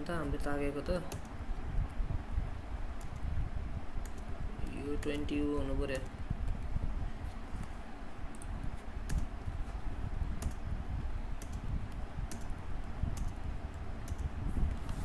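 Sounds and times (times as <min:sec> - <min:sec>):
low background hum: 0:00.0 - 0:15.0
keyboard keystrokes clicking: 0:11.4 - 0:11.6.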